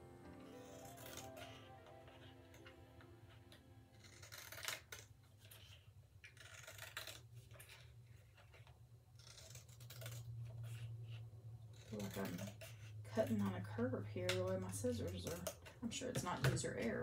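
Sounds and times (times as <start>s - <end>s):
scissors cutting card: 0.5s - 8.6s, 11.7s - 13.6s, 14.2s - 16.9s.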